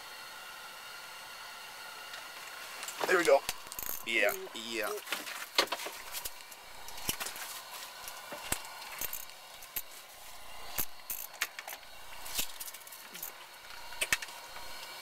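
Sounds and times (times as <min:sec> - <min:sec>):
fishing reel clicking: 0:03.7 - 0:04.4, 0:09.0 - 0:09.9, 0:10.7 - 0:13.4.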